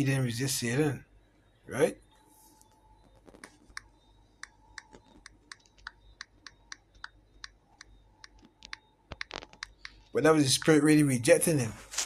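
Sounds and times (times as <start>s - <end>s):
smartphone keyboard typing clicks: 3.3s - 10.1s.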